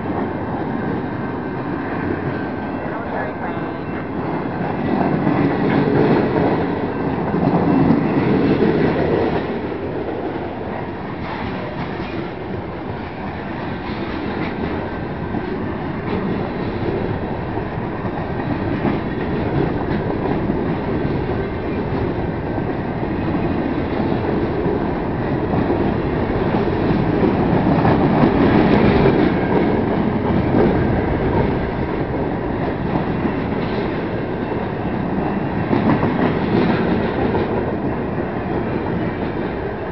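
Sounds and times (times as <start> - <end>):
train wheels clattering on rails: 0.0 - 39.9.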